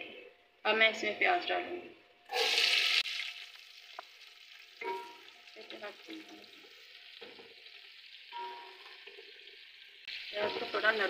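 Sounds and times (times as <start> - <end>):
onions sizzling in pot: 2.3 - 11.0.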